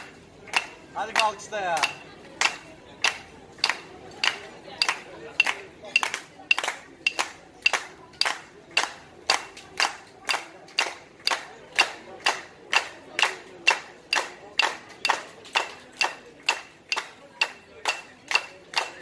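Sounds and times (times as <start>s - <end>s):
knife tapping clay pot: 0.6s - 2.1s.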